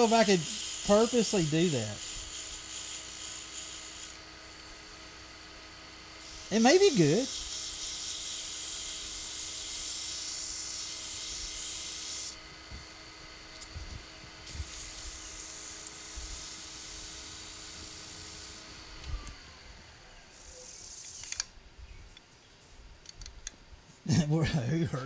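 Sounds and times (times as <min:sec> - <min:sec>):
sandpaper hissing on spinning wood: 0:00.0 - 0:13.3, 0:14.3 - 0:18.9, 0:20.3 - 0:21.3
lathe motor hum: 0:00.0 - 0:20.6.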